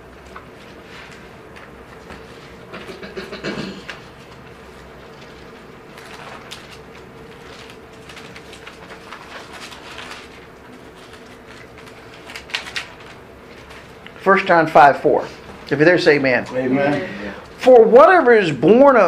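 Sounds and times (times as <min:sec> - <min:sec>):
faint room hum: 0:00.0 - 0:19.0
pages rustling and flicking: 0:00.1 - 0:03.0, 0:03.9 - 0:14.5.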